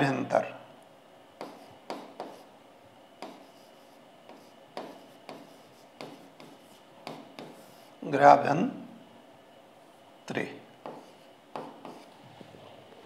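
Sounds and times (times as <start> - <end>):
stylus scratching on screen: 3.2 - 8.0, 10.9 - 12.1.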